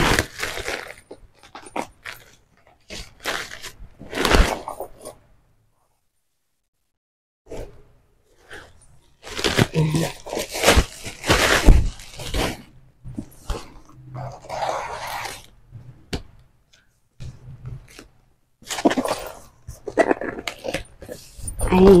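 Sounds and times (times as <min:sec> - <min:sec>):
cardboard and plastic rustling: 0:00.0 - 0:05.2, 0:08.3 - 0:15.5, 0:17.2 - 0:22.0.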